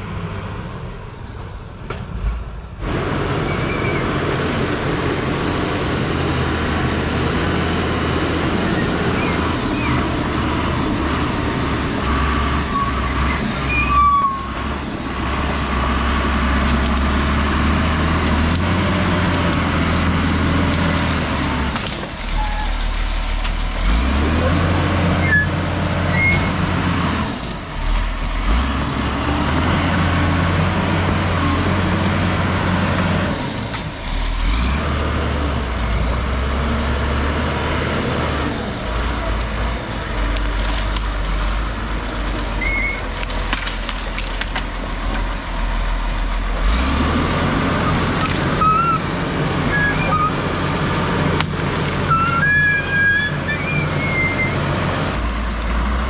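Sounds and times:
dozer diesel engine under load: 0:00.0 - 0:56.0
short high squeaks: 0:12.7 - 0:14.6, 0:22.3 - 0:22.8, 0:42.6 - 0:43.0, 0:52.1 - 0:54.6
blade pushing dirt and brush: 0:46.3 - 0:55.9.

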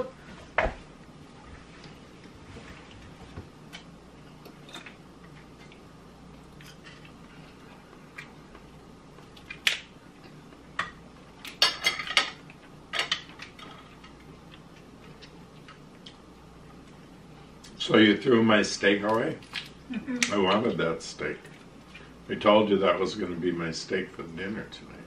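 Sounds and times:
dishes clattering: 0:11.6 - 0:12.4.

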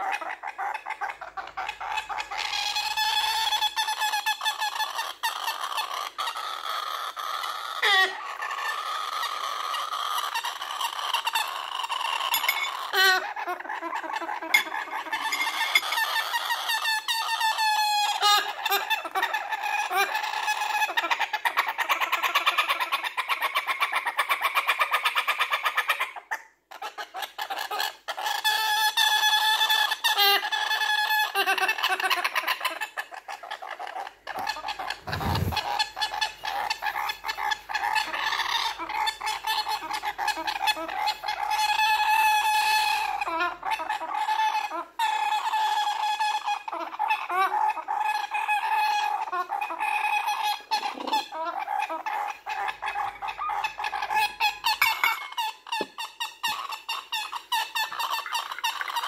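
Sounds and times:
young bird rasping calls: 0:33.2 - 0:44.3.

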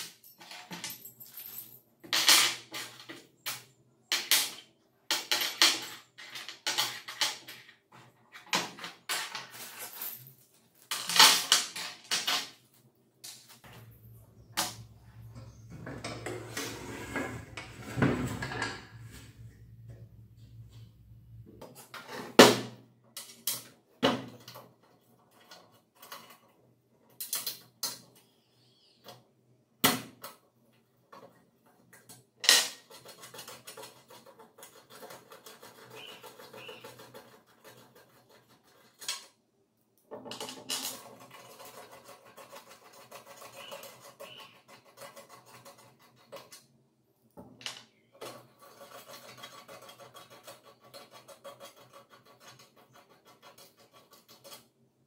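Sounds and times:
spanner scratching and rubbing on bolts: 0:13.6 - 0:22.2, 0:32.8 - 0:39.3, 0:40.5 - 0:46.6, 0:48.2 - 0:54.8.

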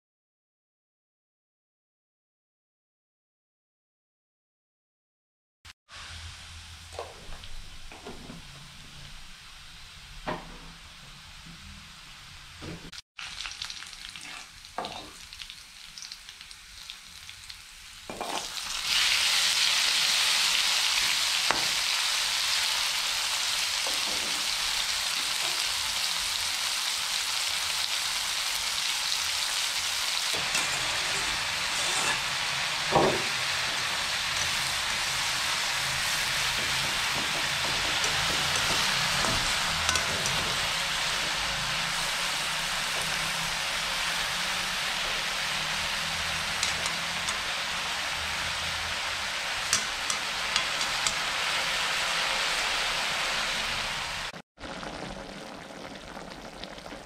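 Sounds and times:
loud steady sizzle: 0:05.9 - 0:57.0
onions frying in oil: 0:05.9 - 0:57.0
ladle clanking against wok: 0:30.4 - 0:42.0, 0:46.2 - 0:47.6, 0:49.7 - 0:51.4.

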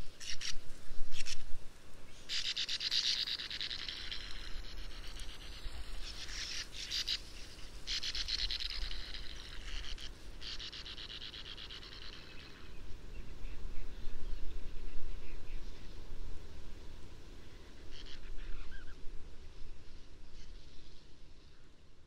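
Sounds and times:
birds twittering harshly: 0:02.1 - 0:15.7.

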